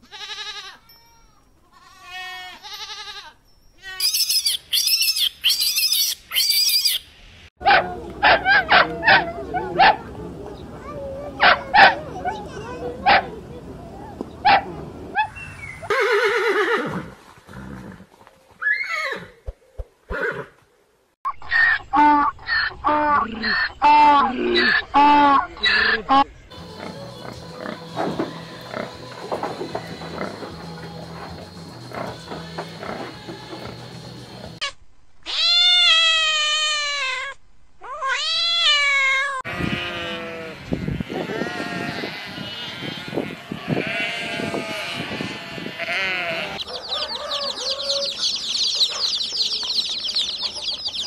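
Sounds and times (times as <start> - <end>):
sheep bleating: 0.0 - 1.0, 26.6 - 30.8, 39.4 - 46.6
horse whinnying: 15.8 - 18.0, 18.6 - 19.4
cat meowing: 35.3 - 39.4.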